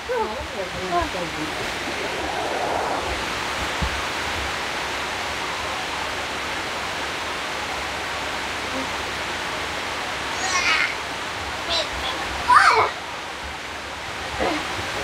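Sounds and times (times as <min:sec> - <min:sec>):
rain falling: 0:00.0 - 0:15.0.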